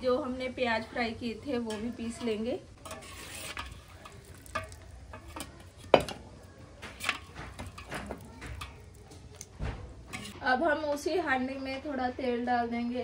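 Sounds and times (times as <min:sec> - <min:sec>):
metal spoon scraping a pot: 0:01.6 - 0:10.4.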